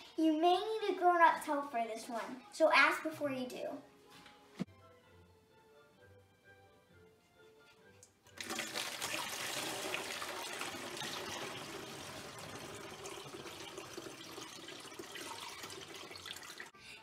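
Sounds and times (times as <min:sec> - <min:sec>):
liquid pouring into carafe: 0:08.3 - 0:16.7.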